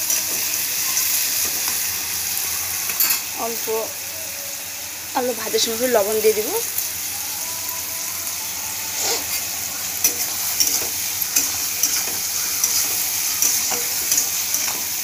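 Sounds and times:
food sizzling in hot oil: 0.0s - 15.0s
spatula scraping and tapping wok: 10.0s - 15.0s.

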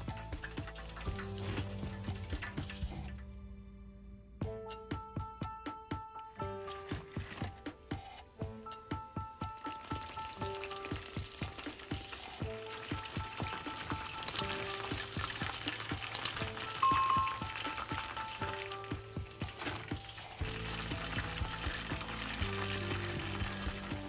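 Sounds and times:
chicken sizzling in hot oil: 0.0s - 3.2s, 9.0s - 24.0s
background music: 0.0s - 24.0s.

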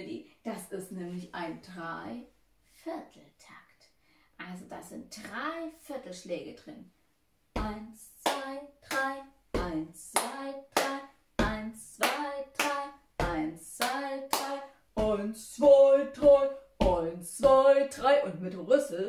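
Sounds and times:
woman counting: 4.4s - 6.9s, 7.5s - 19.0s
hand claps: 7.6s - 15.2s.

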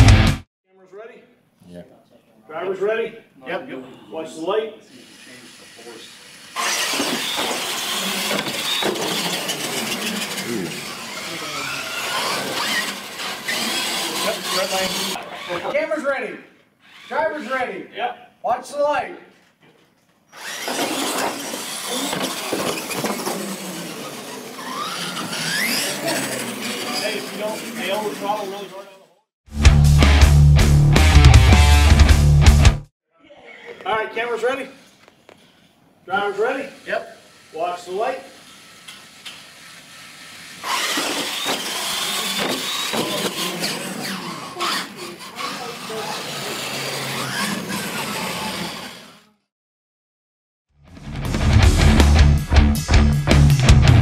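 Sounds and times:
toy truck motors whirring: 4.9s - 15.8s, 16.8s - 17.5s, 20.3s - 29.1s, 36.2s - 49.5s.

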